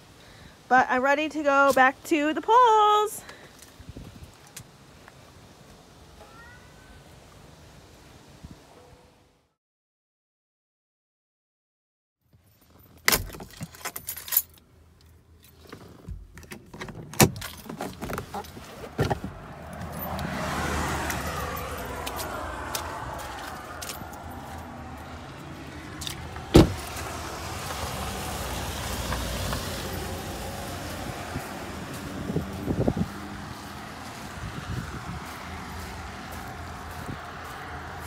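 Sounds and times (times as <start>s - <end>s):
keys jangling: 12.5s - 16.0s, 17.2s - 18.7s, 21.1s - 24.6s
car door opening: 15.7s - 24.6s, 25.5s - 30.1s.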